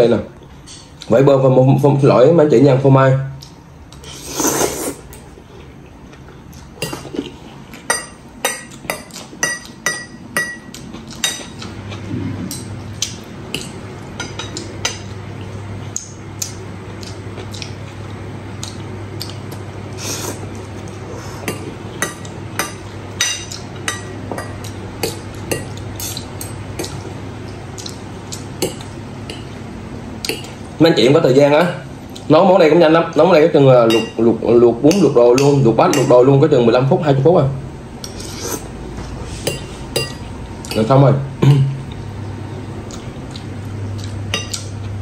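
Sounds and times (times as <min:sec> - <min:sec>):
low steady hum: 0:00.0 - 0:45.0
cutlery clinking on ceramic bowl: 0:07.9 - 0:11.7, 0:39.5 - 0:40.9.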